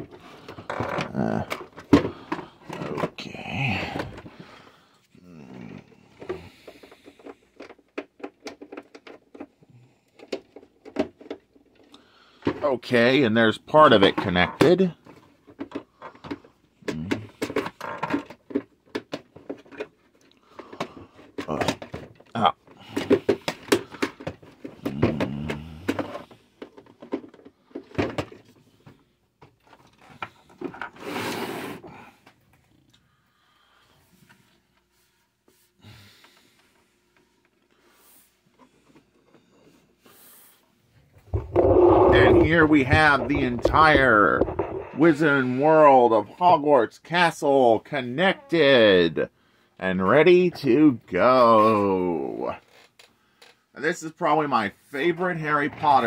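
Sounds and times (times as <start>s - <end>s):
plastic parts knocking: 0.0s - 3.2s, 6.1s - 9.5s, 14.0s - 31.0s, 41.2s - 45.0s
plastic piece scraping: 41.1s - 45.6s
plastic pieces clicking and knocking: 41.3s - 44.9s.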